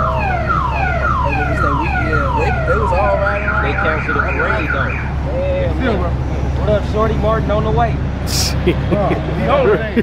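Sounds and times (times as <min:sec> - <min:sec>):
car alarm wailing and warbling: 0:00.0 - 0:05.2.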